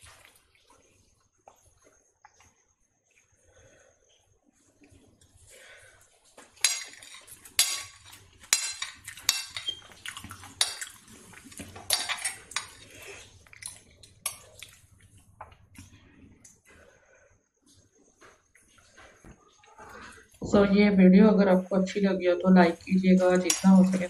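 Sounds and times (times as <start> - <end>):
cutlery clinking and scraping plate: 6.6 - 13.0, 23.2 - 24.0.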